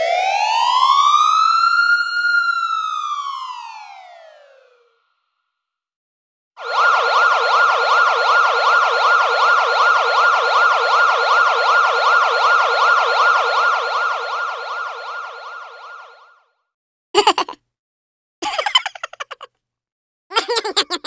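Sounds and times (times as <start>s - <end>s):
emergency siren yelping: 0.0s - 4.8s, 6.6s - 16.5s.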